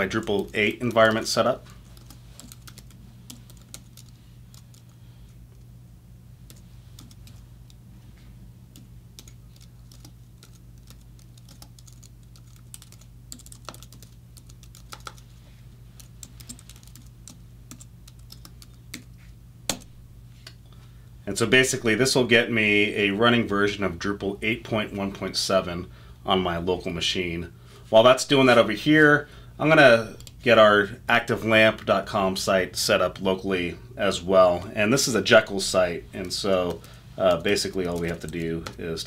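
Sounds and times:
steady low hum: 0:00.0 - 0:39.0
typing on computer keyboard: 0:01.8 - 0:04.9, 0:06.5 - 0:07.4, 0:08.8 - 0:15.2, 0:16.0 - 0:19.1, 0:36.7 - 0:38.8.

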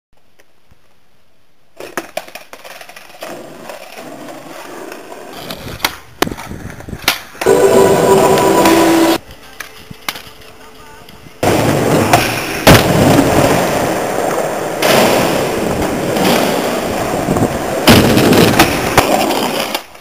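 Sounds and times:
skateboard wheels rolling on pavement: 0:00.2 - 0:20.0
skateboard clacks popping and landing: 0:01.8 - 0:07.5, 0:11.4 - 0:20.0
loud steady sound with held tones: 0:07.4 - 0:09.3.

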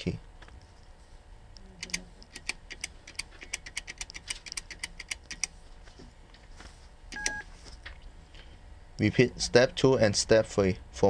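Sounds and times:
metal keypad buttons clicking: 0:01.8 - 0:05.5, 0:07.2 - 0:07.4.

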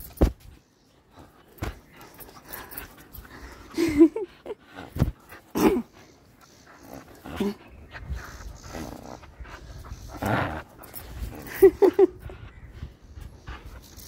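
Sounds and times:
dog play growling: 0:04.6 - 0:12.4.

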